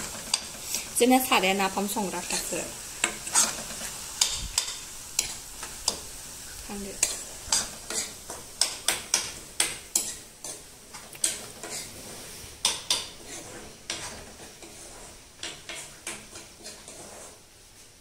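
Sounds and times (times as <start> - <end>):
metal spoon clinking in iron pan: 7.0 - 10.6.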